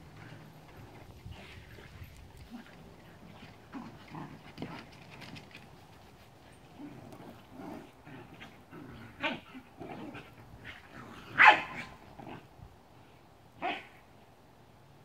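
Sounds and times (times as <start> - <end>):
dog barks: 11.3 - 12.0, 13.6 - 14.0.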